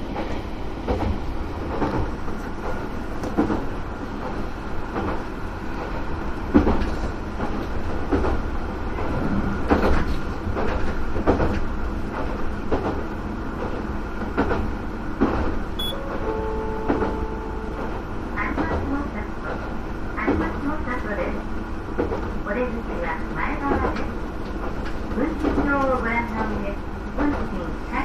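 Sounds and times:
railcar engine drone: 0:00.0 - 0:28.0.

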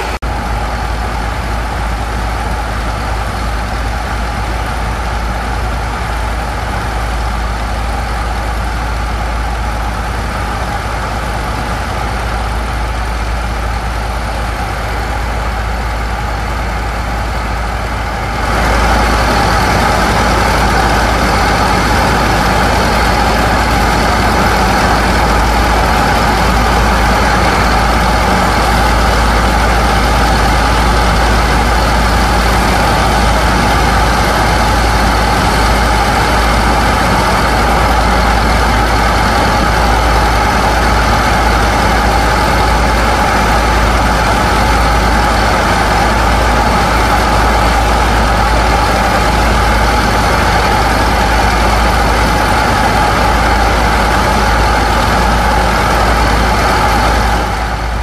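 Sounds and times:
diesel pump engines running: 0:00.0 - 0:58.0.

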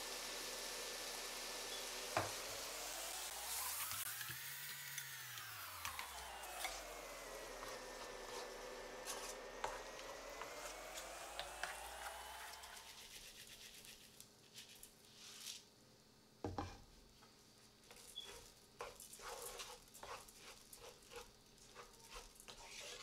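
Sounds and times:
spatula scraping a pan: 0:07.5 - 0:10.7, 0:17.9 - 0:23.0
rice clicks and scrapes: 0:07.5 - 0:15.7, 0:17.8 - 0:23.0.

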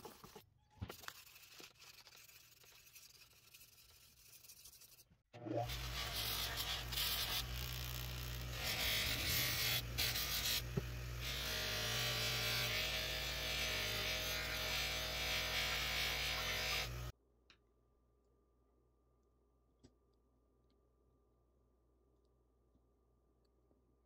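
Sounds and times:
bench grinder motor running: 0:05.6 - 0:17.1.

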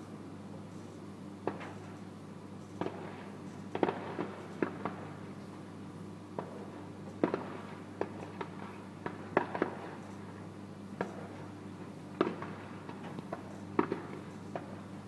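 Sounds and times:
steady low hum: 0:00.0 - 0:15.0
distant fireworks bangs: 0:02.8 - 0:05.2, 0:06.4 - 0:10.0, 0:12.2 - 0:14.8.

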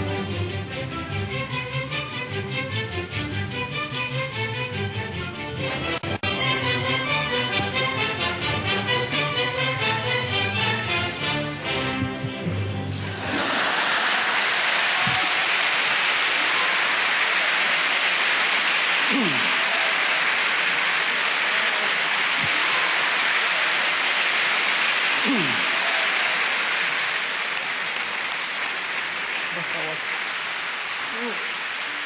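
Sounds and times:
orchestral music: 0:00.0 - 0:13.7
audience applauding: 0:11.9 - 0:32.0
crowd calling out: 0:13.1 - 0:27.5.

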